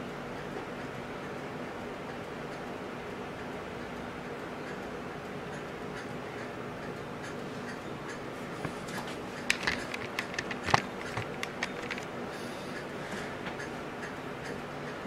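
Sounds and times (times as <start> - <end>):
steady low hum: 0.0 - 15.0
light handling clicks and knocks: 7.2 - 12.1.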